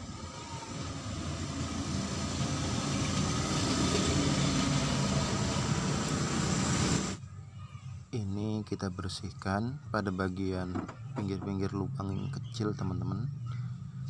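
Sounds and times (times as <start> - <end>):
vehicle engine running: 0.0 - 7.2.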